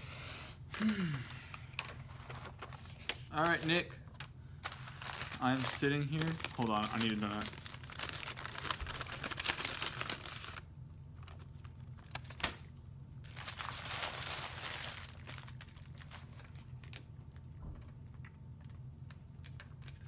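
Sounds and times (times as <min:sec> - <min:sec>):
steady low hum: 0:00.0 - 0:20.0
paper packaging crinkling: 0:01.8 - 0:18.0, 0:18.6 - 0:20.0.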